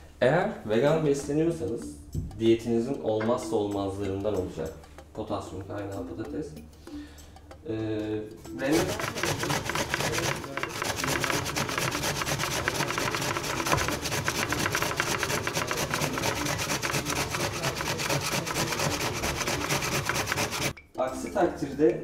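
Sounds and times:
potato grated on metal grater: 8.6 - 20.7.

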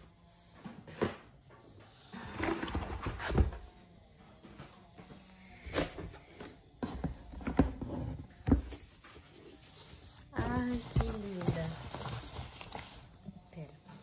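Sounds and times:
paper and cardboard rustling: 6.8 - 13.3.

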